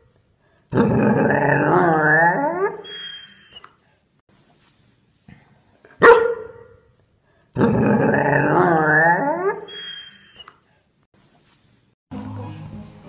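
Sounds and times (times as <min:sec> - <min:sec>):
dog drawn-out wavering call: 0:02.4 - 0:03.7, 0:08.9 - 0:10.6
dog barking: 0:06.0 - 0:06.9.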